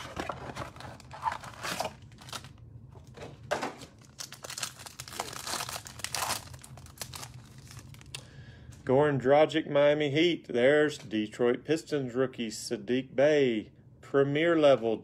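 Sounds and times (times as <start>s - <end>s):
foil pack tearing and crinkling: 0.0s - 2.5s, 4.0s - 8.1s
wrapper and cardboard rustling: 0.0s - 8.1s.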